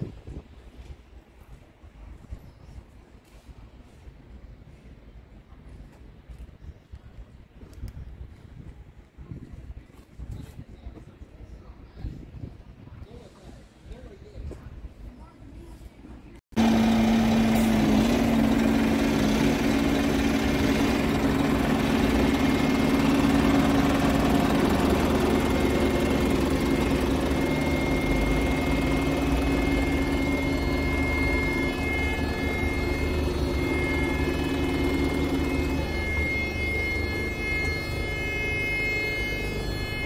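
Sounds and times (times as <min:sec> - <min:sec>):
truck diesel engine humming: 0:16.5 - 0:40.0.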